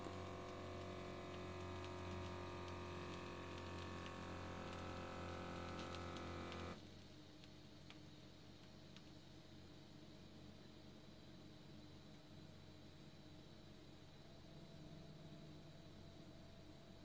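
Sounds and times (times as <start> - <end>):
small air pump humming: 0.0 - 6.9.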